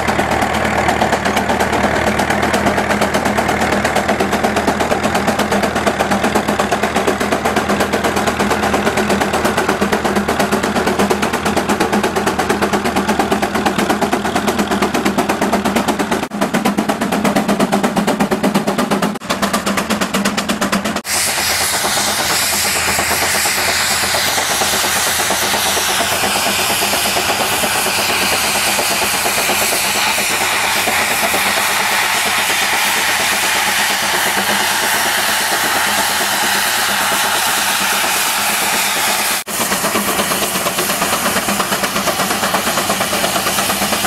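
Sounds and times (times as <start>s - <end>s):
steam engine exhaust chuffing: 0.0s - 44.0s
steam hissing: 17.7s - 44.0s.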